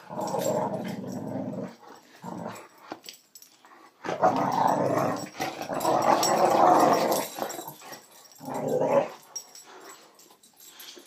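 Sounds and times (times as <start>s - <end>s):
dog growling: 0.0s - 2.8s, 4.0s - 9.7s.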